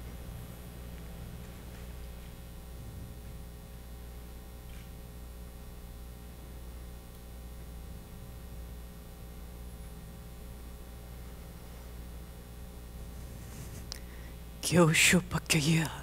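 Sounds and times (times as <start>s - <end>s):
low hum: 0.0s - 16.0s
faint soft sounds: 12.9s - 14.4s.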